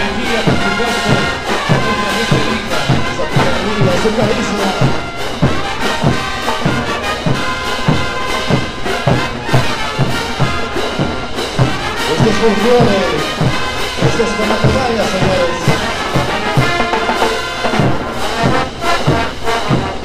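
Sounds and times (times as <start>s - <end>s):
bass drum and cymbal beat: 0.0s - 20.0s
brass band playing: 0.0s - 20.0s.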